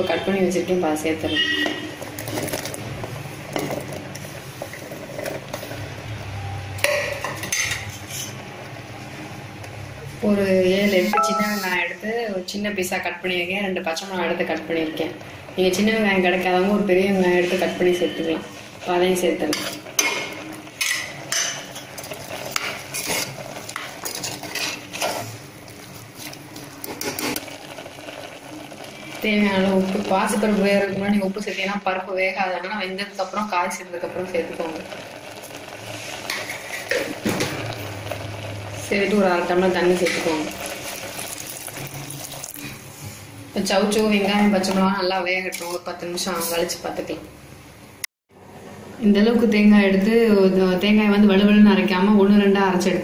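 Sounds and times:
kitchenware clatter: 0:06.8 - 0:08.4, 0:19.5 - 0:25.3, 0:36.2 - 0:37.6
metal spoon scraping and clinking pot: 0:06.9 - 0:08.4, 0:19.5 - 0:25.3.

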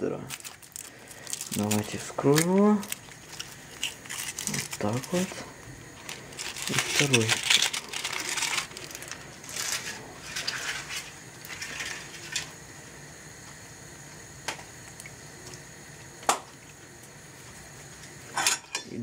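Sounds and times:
chocolate shells crackling: 0:00.0 - 0:12.6.

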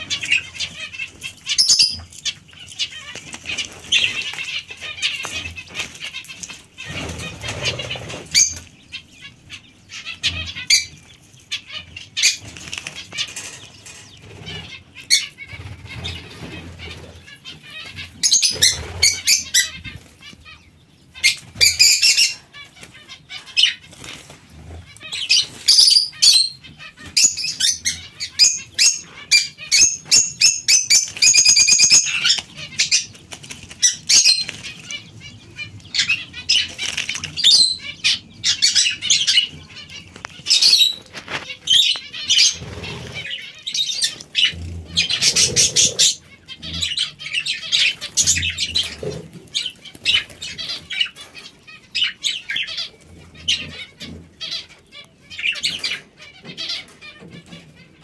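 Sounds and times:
bird splashing and fluttering: 0:36.6 - 0:37.4.

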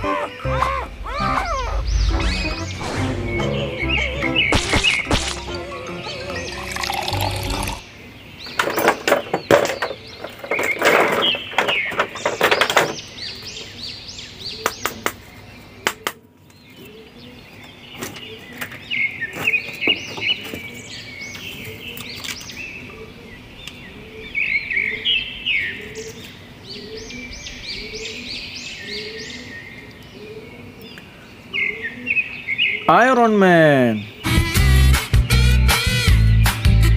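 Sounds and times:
birds chirping: 0:00.0 - 0:36.9
plastic tray crackling and clattering: 0:08.6 - 0:13.0.

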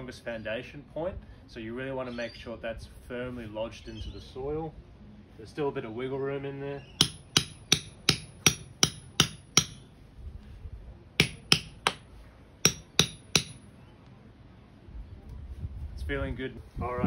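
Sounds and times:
hammer striking metal pole: 0:07.0 - 0:09.9, 0:11.2 - 0:13.6.

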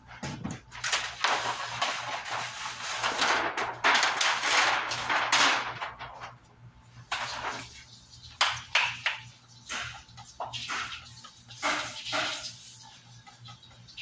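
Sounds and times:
plastic sheet rustling: 0:00.7 - 0:08.0.

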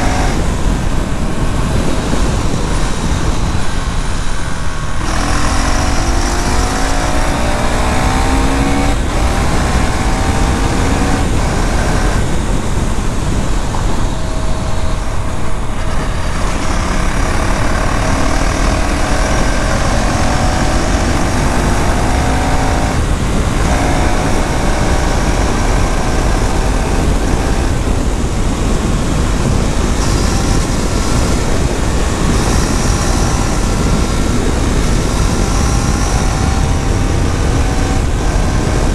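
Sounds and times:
motorcycle engine accelerating: 0:00.0 - 0:38.9
wind rush: 0:00.0 - 0:38.9.

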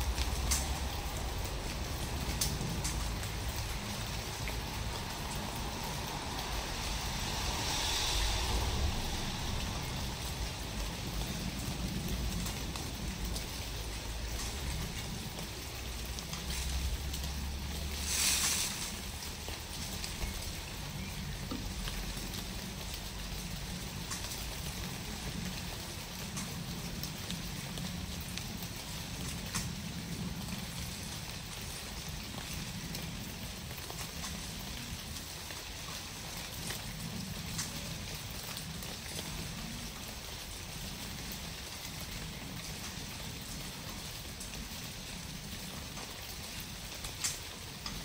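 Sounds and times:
even hiss: 0:00.0 - 0:13.4, 0:16.4 - 0:21.8
low rumble: 0:00.0 - 0:24.0.

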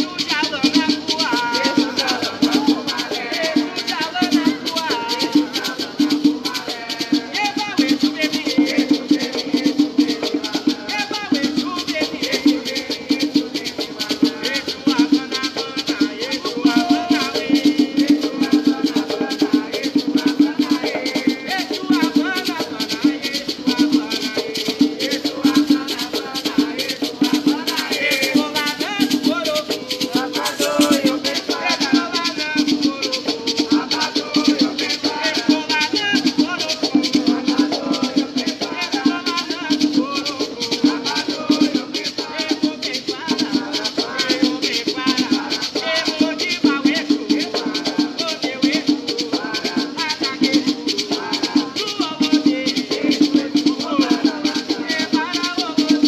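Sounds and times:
gourd rattles shaken: 0:00.0 - 0:56.0
hand drums: 0:00.0 - 0:56.0
men singing a chant: 0:00.0 - 0:56.0.

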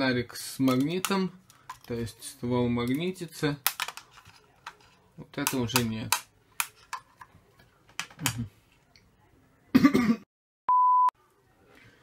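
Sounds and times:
short steady beep: 0:10.7 - 0:11.1.

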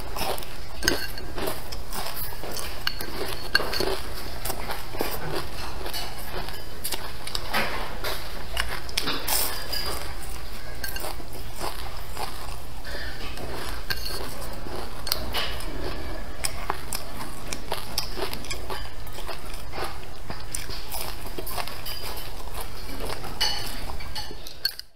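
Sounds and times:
biting and chewing: 0:00.0 - 0:24.9
low background hum: 0:00.0 - 0:24.9
chopsticks clicking against bowl: 0:23.4 - 0:24.9.

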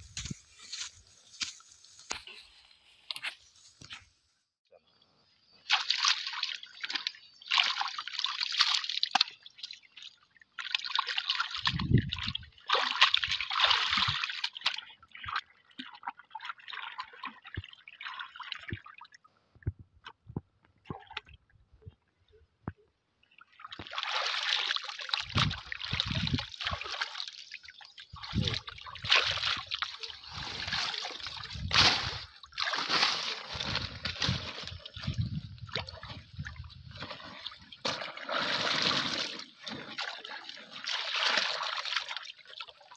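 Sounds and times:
shallow water splashing: 0:23.2 - 0:42.9.

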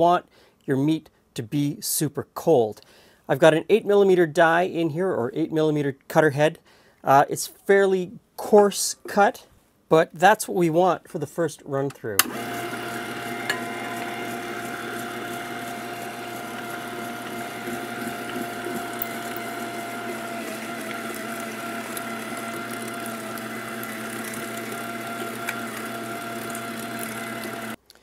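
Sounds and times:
electric meat grinder running: 0:12.2 - 0:27.8.

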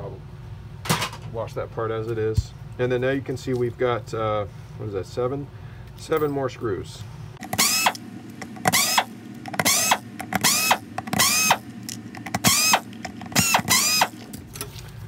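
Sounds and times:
power drill whine: 0:07.4 - 0:14.4.

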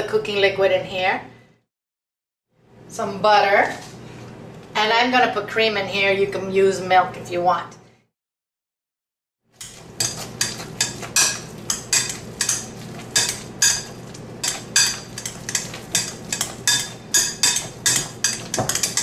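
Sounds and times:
potato masher clinking on glass: 0:09.6 - 0:19.0.

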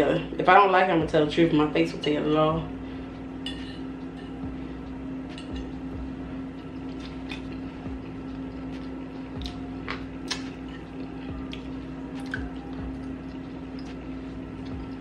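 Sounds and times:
steady low hum: 0:00.0 - 0:15.0
chewing mouth sounds: 0:06.6 - 0:14.0.

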